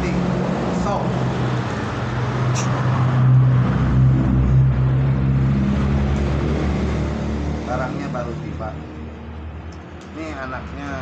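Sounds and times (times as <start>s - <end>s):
vehicle engine humming: 0.0s - 11.0s
sharp click: 2.6s - 2.8s.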